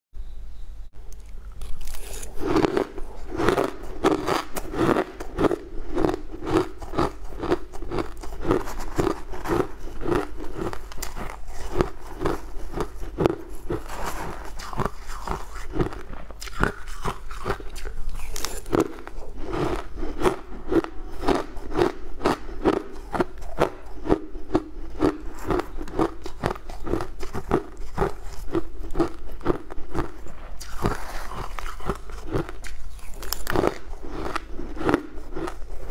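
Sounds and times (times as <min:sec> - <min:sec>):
crunching and chewing ice: 0:01.2 - 0:35.9.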